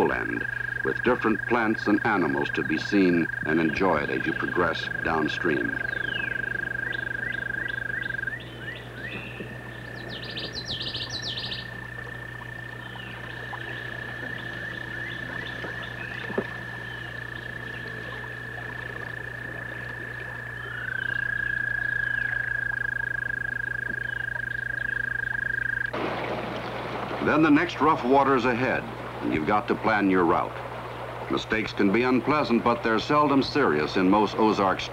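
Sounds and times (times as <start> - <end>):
birds chirping: 0.0 - 25.9
frogs trilling: 0.0 - 34.9.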